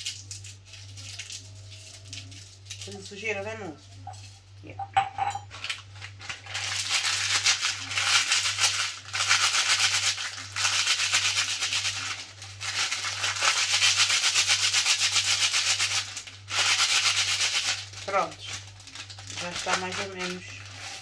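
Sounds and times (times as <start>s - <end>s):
dried leaves crackling in paper packet: 0.0s - 4.6s, 5.5s - 21.0s
low steady hum: 0.0s - 9.2s.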